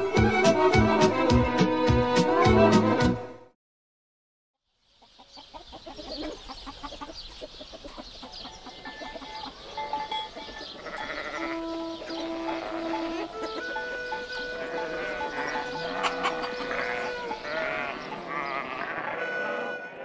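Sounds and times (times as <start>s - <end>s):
animal chirps: 5.1s - 18.7s
sustained musical notes: 9.9s - 18.1s.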